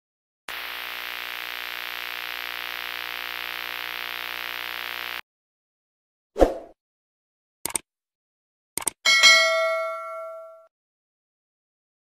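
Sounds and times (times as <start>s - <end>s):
electronic static hiss: 0.5s - 5.2s.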